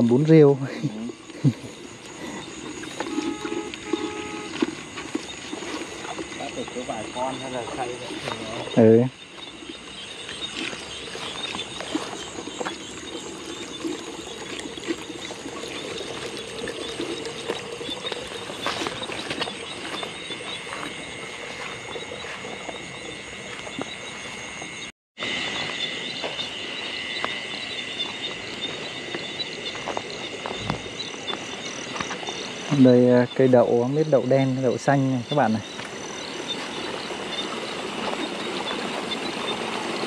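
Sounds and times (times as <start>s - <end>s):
crickets chirping: 0.0s - 40.0s
frogs calling: 0.0s - 40.0s
footsteps through grass: 9.3s - 12.9s, 17.1s - 24.5s.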